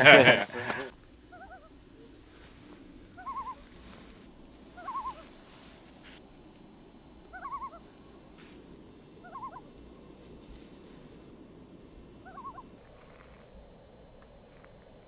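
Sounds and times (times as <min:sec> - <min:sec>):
bird warbling call: 0:01.3 - 0:01.8, 0:03.2 - 0:03.7, 0:04.7 - 0:05.4, 0:07.3 - 0:07.8, 0:09.2 - 0:09.7, 0:12.2 - 0:12.7.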